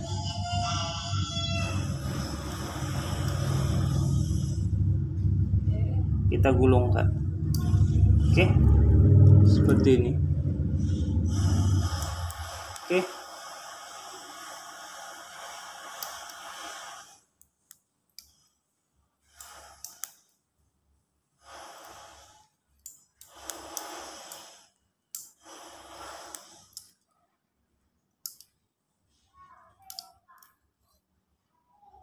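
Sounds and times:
small clicks: 17.4s - 18.5s, 28.2s - 28.6s, 29.8s - 30.6s.

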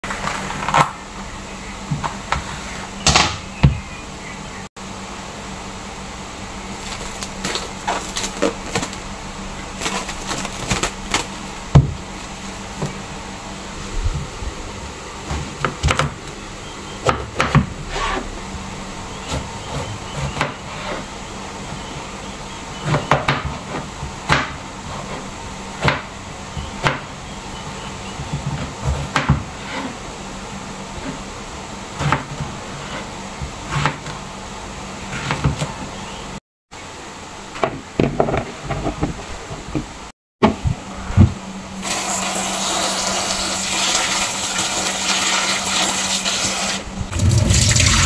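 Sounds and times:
plastic cling wrap crinkling: 6.7s - 12.6s.

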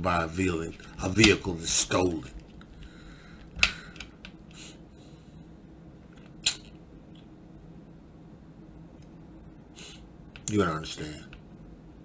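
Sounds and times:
low room hum: 0.0s - 12.0s
faint hiss: 9.6s - 11.3s.

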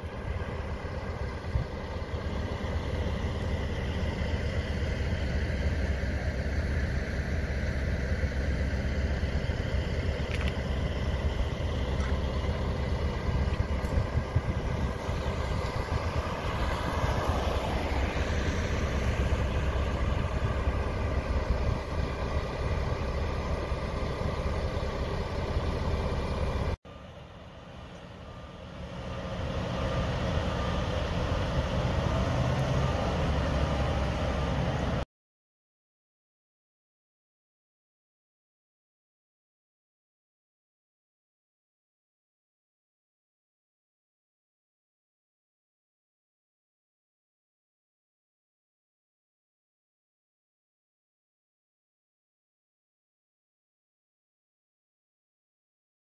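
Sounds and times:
diesel truck engines rumbling: 0.0s - 35.0s.

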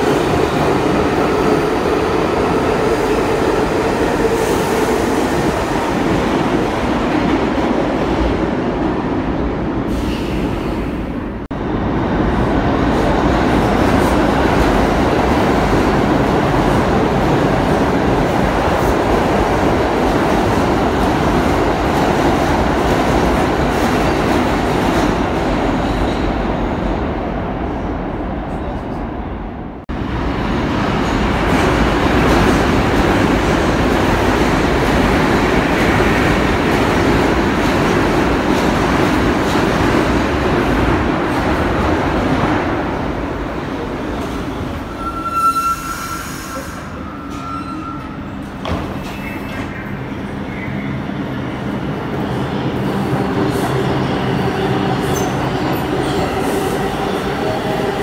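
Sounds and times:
subway train rumble and rattle: 0.0s - 58.0s.

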